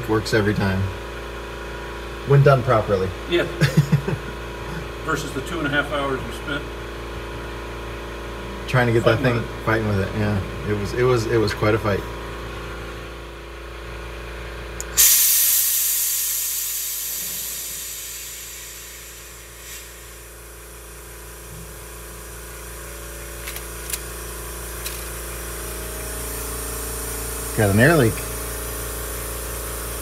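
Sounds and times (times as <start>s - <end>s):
hiss of escaping air: 14.8s - 20.5s
air brake rush of air: 14.9s - 20.4s.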